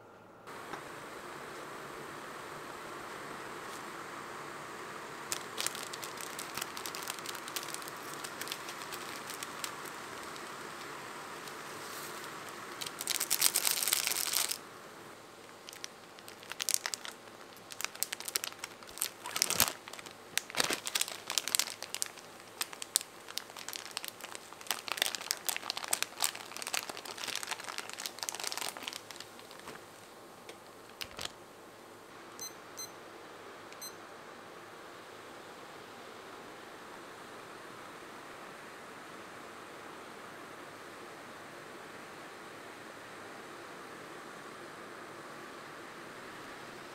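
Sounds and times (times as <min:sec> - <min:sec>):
foil and plastic crinkling: 0:05.3 - 0:14.6, 0:15.4 - 0:30.0, 0:30.8 - 0:31.4
kitchen timer beeps: 0:32.4 - 0:33.0, 0:33.8 - 0:34.0.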